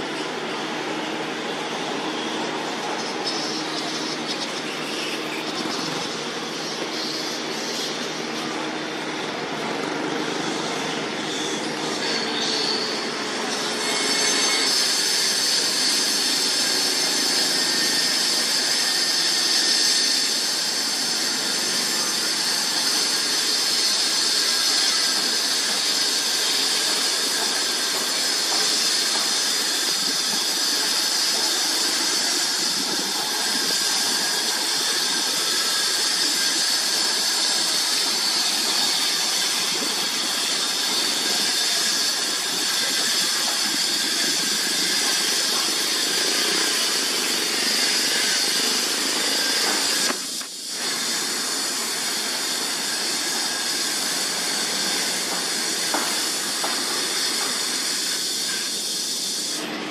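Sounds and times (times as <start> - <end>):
flying foxes squealing and chattering: 2.5 - 8.7.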